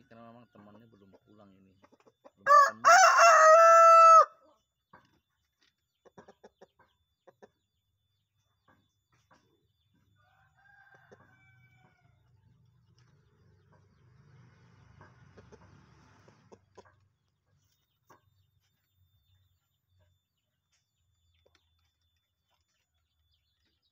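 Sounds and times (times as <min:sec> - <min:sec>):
rooster crowing: 0:02.4 - 0:04.4, 0:10.2 - 0:12.2.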